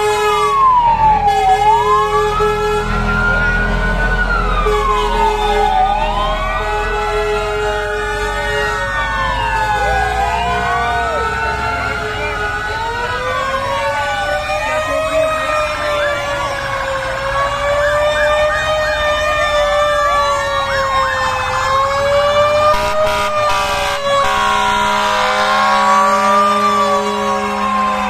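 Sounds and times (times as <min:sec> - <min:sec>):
emergency sirens wailing: 0:00.0 - 0:28.0
steady horn note: 0:22.7 - 0:26.0.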